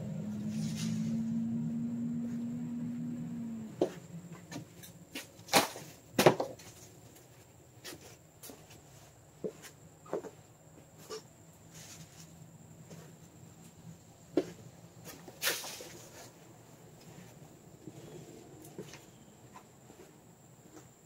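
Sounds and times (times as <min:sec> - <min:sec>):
steady hum: 0:00.0 - 0:06.2.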